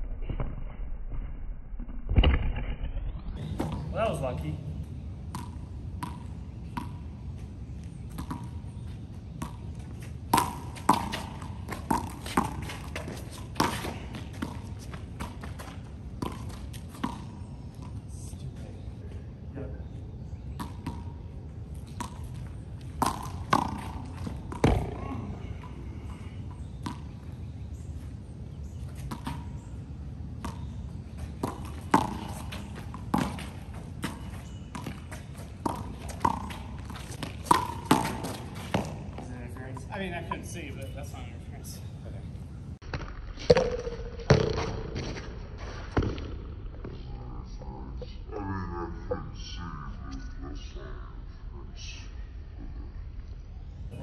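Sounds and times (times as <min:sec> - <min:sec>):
ball bouncing on concrete: 0:03.4 - 0:04.0, 0:05.3 - 0:07.1, 0:08.1 - 0:08.7, 0:09.3 - 0:18.0, 0:20.5 - 0:21.2, 0:21.8 - 0:27.3, 0:29.0 - 0:29.7, 0:30.4 - 0:40.9, 0:42.8 - 0:45.3, 0:45.9 - 0:47.0.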